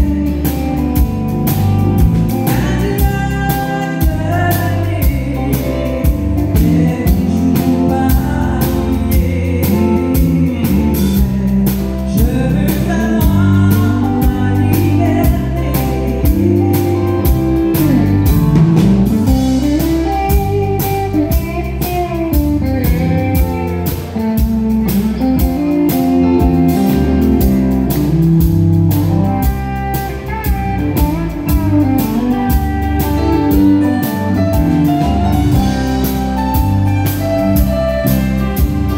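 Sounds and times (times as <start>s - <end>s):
acoustic guitar: 0.0s - 38.9s
pedal steel guitar: 0.0s - 38.9s
steady drum beat: 0.0s - 38.9s
woman singing: 2.4s - 18.1s.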